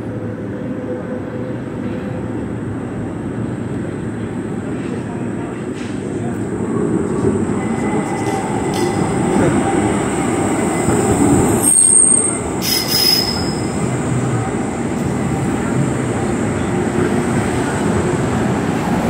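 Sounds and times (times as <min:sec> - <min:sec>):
tram wheels rumbling on track: 0:00.0 - 0:19.0
high-pitched wheel squeals: 0:11.5 - 0:13.8.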